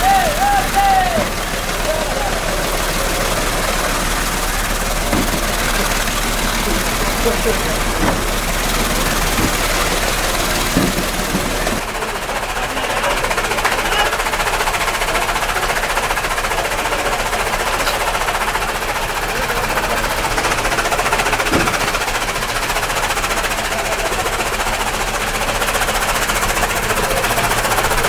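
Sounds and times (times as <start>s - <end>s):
chaff cutter chopping fodder: 0.0s - 12.1s, 16.6s - 23.4s.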